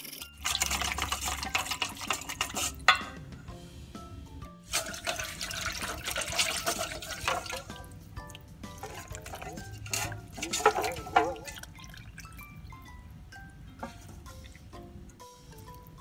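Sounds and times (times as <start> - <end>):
light background music: 0.0 - 16.0
water splashing and trickling: 0.3 - 2.9, 4.7 - 12.8
water pouring into flour: 0.4 - 2.8, 4.7 - 7.9.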